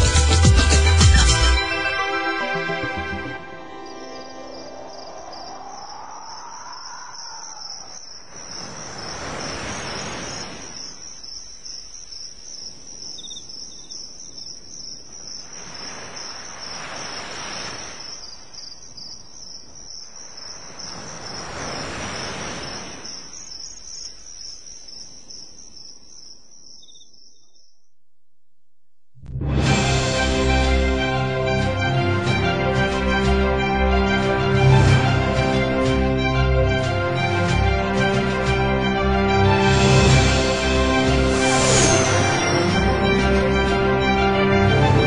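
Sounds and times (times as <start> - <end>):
waves washing in: 1.7 - 13.6, 14.6 - 25.5, 29.6 - 45.0
crickets chirping: 1.9 - 28.0.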